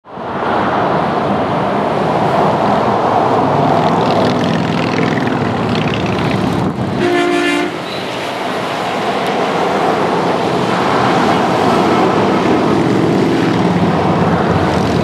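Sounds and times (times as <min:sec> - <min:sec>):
highway traffic passing: 0:00.0 - 0:15.0
truck air horn: 0:07.0 - 0:08.1.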